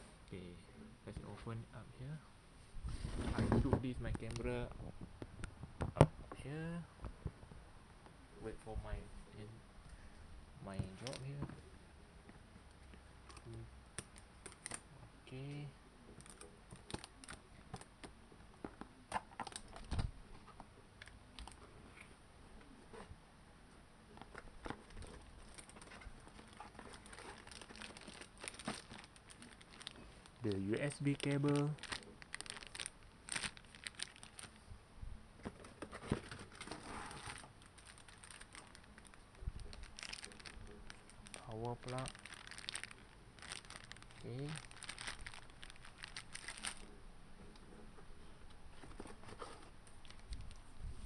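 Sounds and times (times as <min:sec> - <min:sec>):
plastic bags crinkling: 0:16.2 - 0:17.9, 0:19.2 - 0:20.0, 0:24.6 - 0:34.6, 0:36.0 - 0:47.0, 0:50.0 - 0:50.7.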